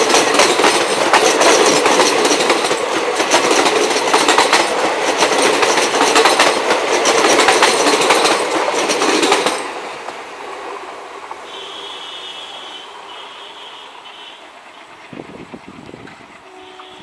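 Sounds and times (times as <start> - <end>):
train wheels clattering over rail joints: 0.0 - 10.3
train rumble: 0.0 - 17.0.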